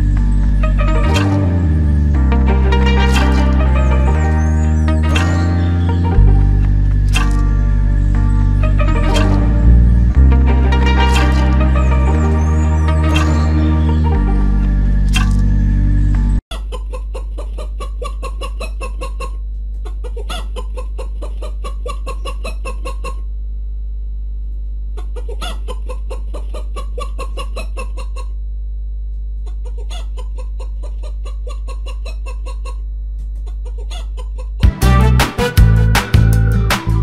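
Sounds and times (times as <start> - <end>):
low hum: 0.0 - 16.4, 23.2 - 25.0, 28.3 - 29.6
music: 0.0 - 16.4, 34.6 - 37.0
chickens clucking: 2.7 - 9.6, 10.7 - 15.4, 16.5 - 23.2, 25.0 - 28.4, 29.4 - 34.6.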